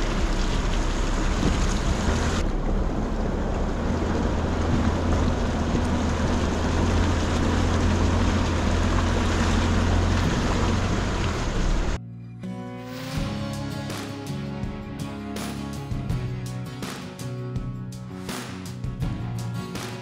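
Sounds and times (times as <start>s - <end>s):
engine and tyre drone: 0.0s - 12.0s
wind: 0.0s - 12.0s.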